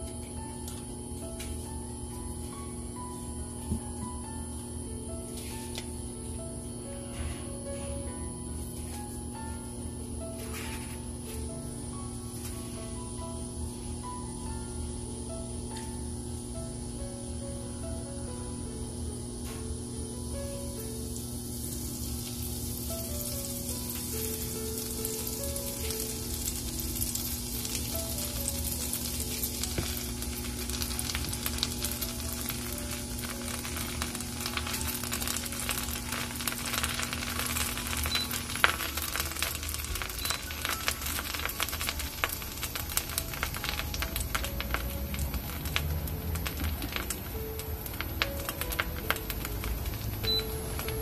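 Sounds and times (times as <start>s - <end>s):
bread sizzling in a frying pan: 20.7s - 51.0s.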